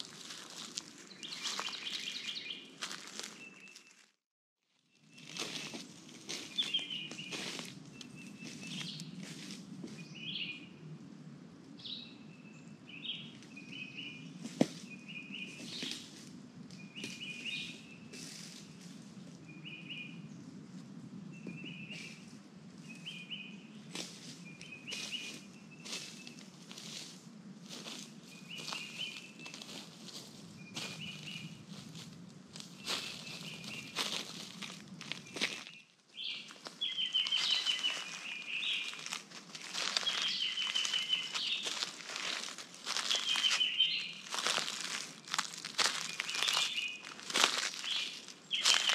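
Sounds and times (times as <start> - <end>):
footsteps crackling dry leaves: 0.0 - 10.5, 13.0 - 16.3, 17.0 - 19.2, 23.9 - 48.9
bird chirping call: 1.1 - 3.9, 6.5 - 9.1, 35.2 - 44.6, 45.9 - 48.9.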